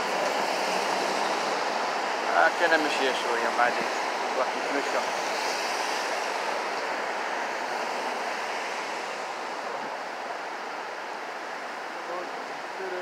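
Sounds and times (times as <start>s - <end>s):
car passing: 0.0s - 12.8s.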